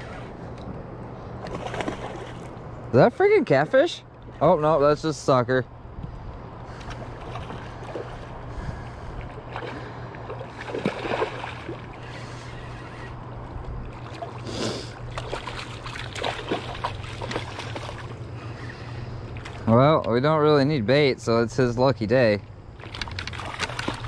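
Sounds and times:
steady low rumble: 0.0s - 24.0s
fish splashing at surface: 1.4s - 2.6s, 9.5s - 12.0s, 14.0s - 18.1s, 22.8s - 24.0s.

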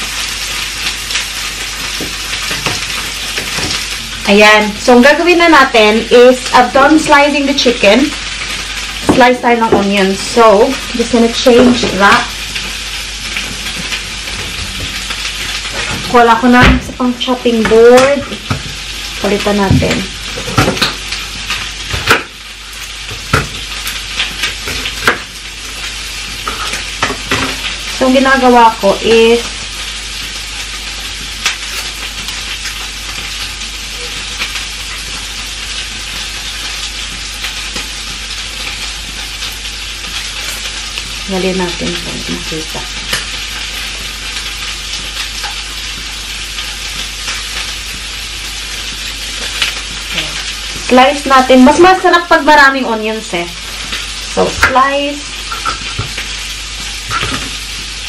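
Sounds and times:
liver sizzling in a pan: 0.0s - 58.0s
knocks of chopping board and knife: 23.3s - 23.6s.

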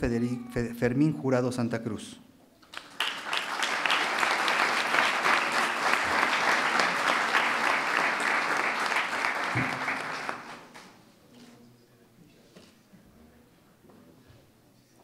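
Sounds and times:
people clapping: 2.6s - 11.0s.

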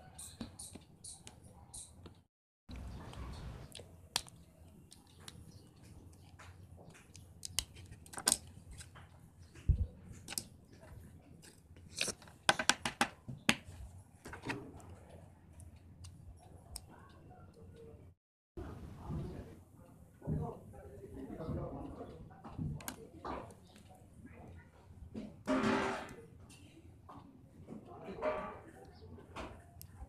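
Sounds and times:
plastic parts clicking and snapping: 6.9s - 9.2s, 10.1s - 10.5s.

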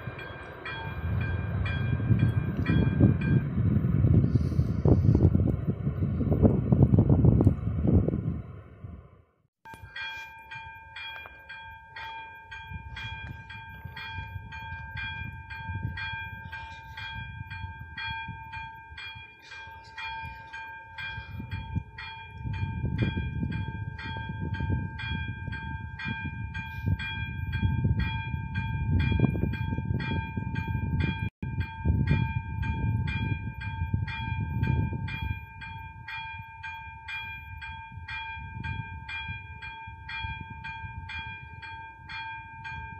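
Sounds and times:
low rumble: 0.0s - 9.3s.

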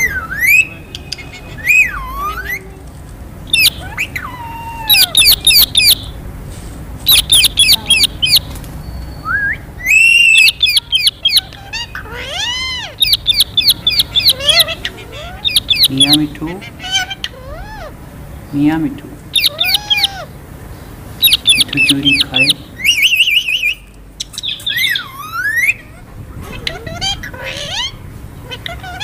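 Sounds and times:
parakeets squawking: 0.0s - 29.0s
swooping whistled bird notes: 7.1s - 11.4s, 21.2s - 25.8s.

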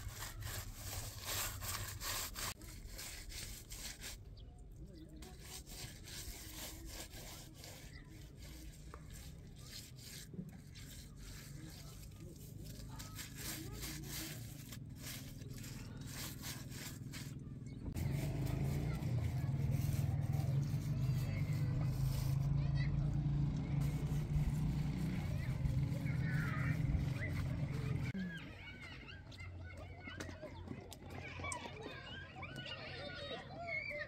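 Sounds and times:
hands smoothing wet mud: 0.0s - 22.5s, 23.8s - 28.2s.

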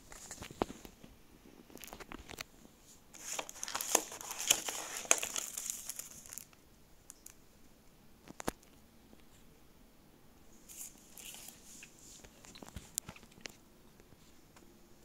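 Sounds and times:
paper and cardboard crinkling: 3.1s - 6.6s, 10.7s - 13.6s.

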